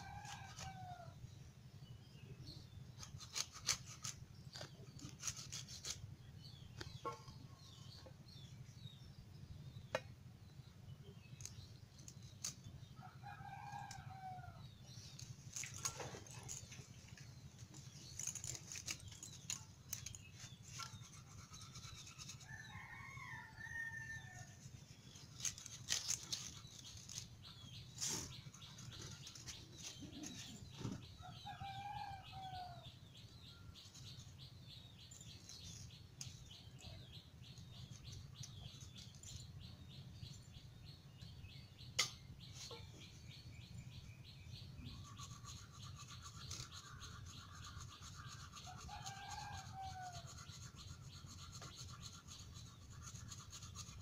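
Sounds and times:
knife scraping fish: 3.0s - 6.0s.

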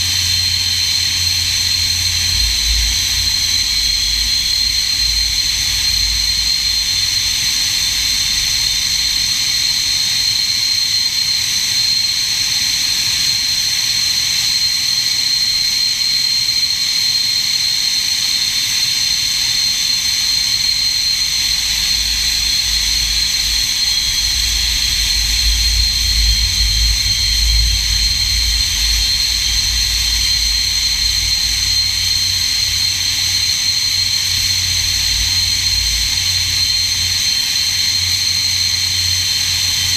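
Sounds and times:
jet engine deep rumble: 0.0s - 39.9s
jet engine high-pitched whine: 0.0s - 39.9s.

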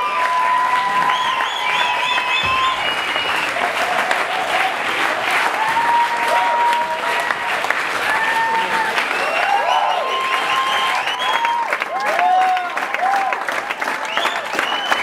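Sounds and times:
audience applauding: 0.0s - 15.0s
audience cheering: 0.0s - 15.0s
high held whistles: 0.9s - 3.6s, 14.1s - 15.0s.

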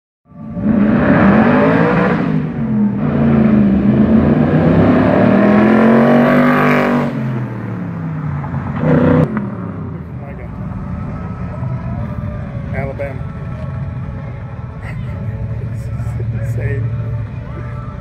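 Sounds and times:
car engine accelerating hard: 0.4s - 11.0s.

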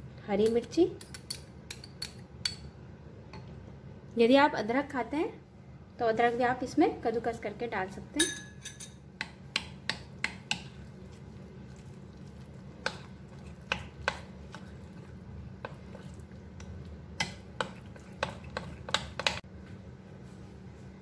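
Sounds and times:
spoon stirring thick batter: 9.2s - 19.4s.

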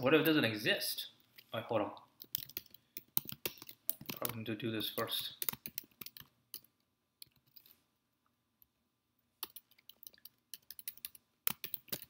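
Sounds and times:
typing on keyboard: 2.2s - 4.4s, 5.0s - 7.6s, 9.4s - 12.0s.

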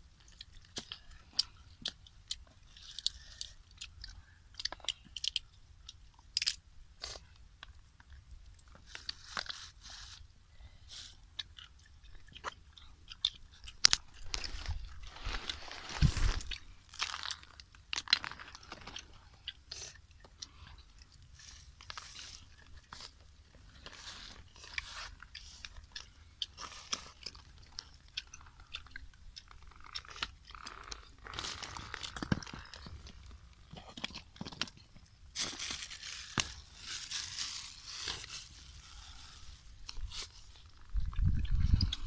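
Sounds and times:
chewing: 0.2s - 7.4s, 10.9s - 42.0s
plastic bag rustling: 14.2s - 19.0s, 30.8s - 33.6s, 35.3s - 40.8s.

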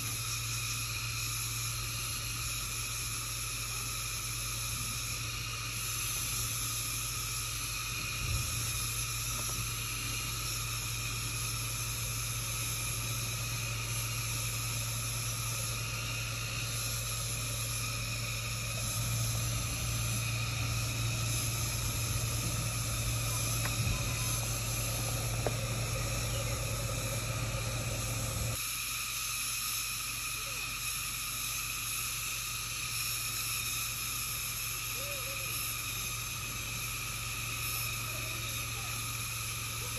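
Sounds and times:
car engine rumble: 0.0s - 28.6s
forest insects chorus: 0.0s - 39.9s.

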